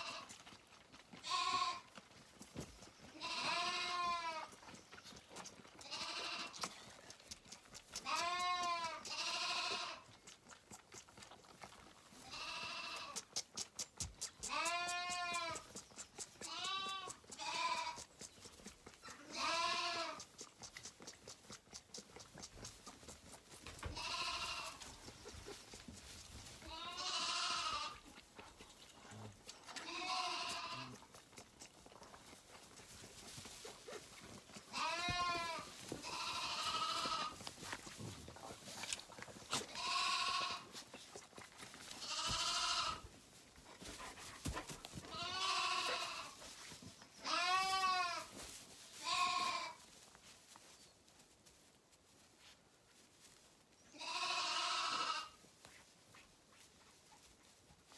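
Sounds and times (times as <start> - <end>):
lambs bleating: 0.0 - 0.4, 1.2 - 2.0, 3.1 - 4.6, 5.8 - 6.8, 7.9 - 10.1, 12.2 - 13.3, 14.4 - 15.8, 16.4 - 18.2, 19.0 - 20.3, 23.6 - 25.8, 26.6 - 28.2, 29.6 - 31.0, 34.6 - 37.6, 38.8 - 40.8, 41.8 - 43.1, 44.0 - 46.4, 47.2 - 49.8, 53.9 - 55.4.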